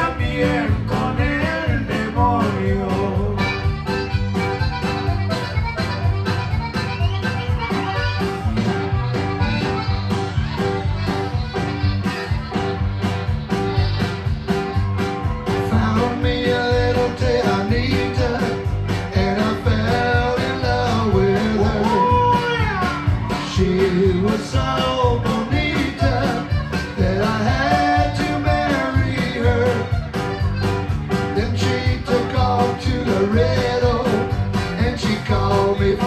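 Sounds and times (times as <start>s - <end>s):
man singing: 0.0s - 4.0s, 15.5s - 30.4s, 31.1s - 36.0s
band playing: 0.0s - 36.0s.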